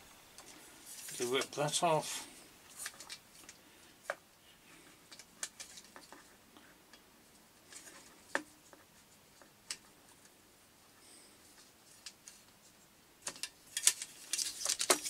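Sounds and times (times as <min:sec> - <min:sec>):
plastic parts clicking and tapping: 0:13.2 - 0:15.0
cardboard packaging rustling: 0:13.7 - 0:15.0.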